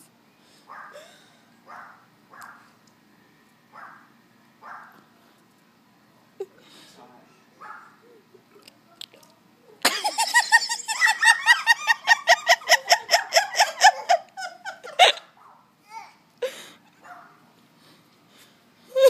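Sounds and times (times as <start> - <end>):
person laughing hard: 9.8 - 15.3.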